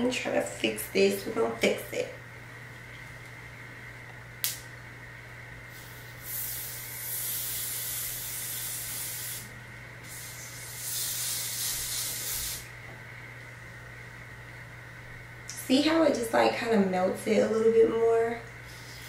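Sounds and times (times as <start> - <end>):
aerosol spray hissing: 5.7 - 12.7.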